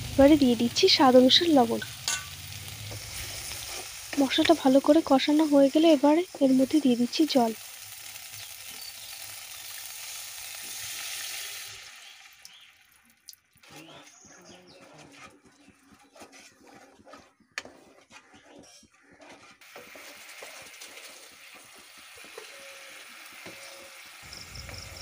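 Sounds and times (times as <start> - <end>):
water hissing in a hot pan: 0.0 - 13.0, 19.6 - 25.0
even sizzle: 0.0 - 13.7, 19.6 - 25.0
spatula scraping a pan: 1.1 - 8.8, 13.6 - 25.0.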